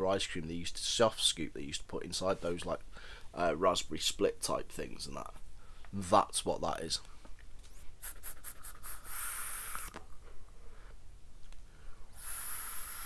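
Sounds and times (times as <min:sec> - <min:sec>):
e-cigarette ticks: 0:08.0 - 0:10.0, 0:12.2 - 0:13.0
hissing vape draw: 0:08.0 - 0:10.0, 0:12.1 - 0:13.0
vapour exhaled hiss: 0:08.0 - 0:10.0, 0:12.1 - 0:13.0.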